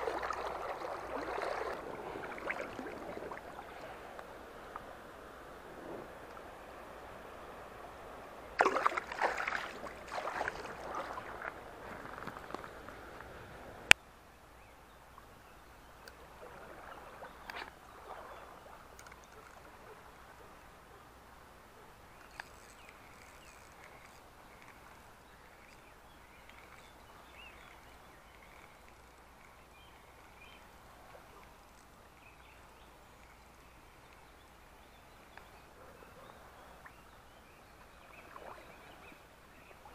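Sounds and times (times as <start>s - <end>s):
water splashing: 0.0s - 4.2s, 8.6s - 12.7s, 16.3s - 19.9s
shallow river water running: 0.0s - 39.9s
faint ticks: 19.0s - 19.9s, 22.2s - 30.5s, 33.1s - 34.5s.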